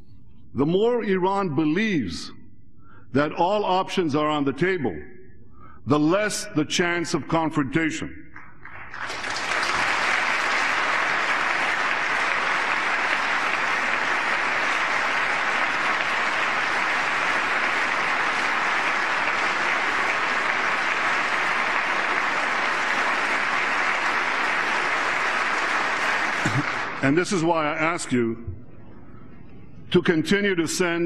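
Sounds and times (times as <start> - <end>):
large audience applauding: 8.6 - 27.2.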